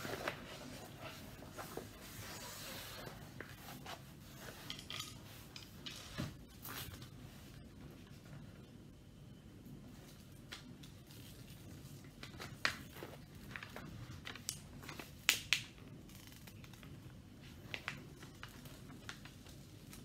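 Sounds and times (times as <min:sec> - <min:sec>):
canvas and paper crackling: 0:00.0 - 0:04.4.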